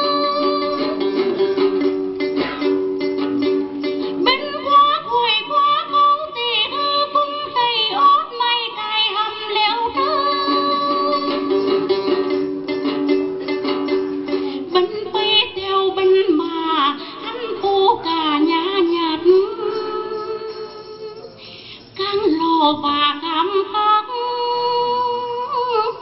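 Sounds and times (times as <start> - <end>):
plucked lute notes: 0.0 - 20.5.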